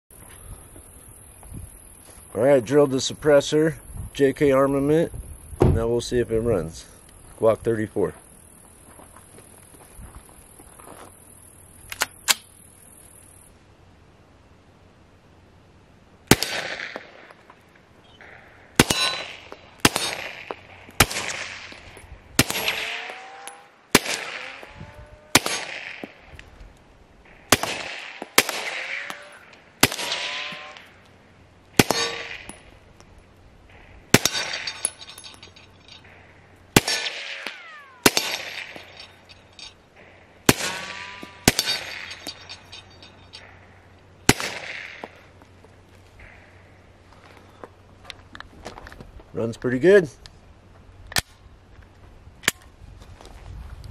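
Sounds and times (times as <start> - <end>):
gunshot echo: 16.3 - 17.3, 18.2 - 26.3, 27.4 - 30.9, 31.8 - 32.7, 33.8 - 34.9, 36.8 - 39.1, 40.0 - 42.5, 44.3 - 45.3
suppressed pistol shots: 16.3 - 17.3, 18.2 - 26.2, 27.4 - 30.9, 31.8 - 32.6, 34.1 - 34.9, 36.7 - 39.1, 40.0 - 42.2, 44.3 - 45.2.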